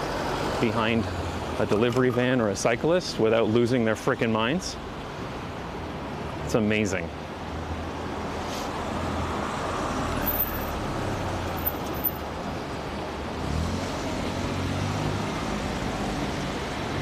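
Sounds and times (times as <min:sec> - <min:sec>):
street noise: 0:00.0 - 0:17.0.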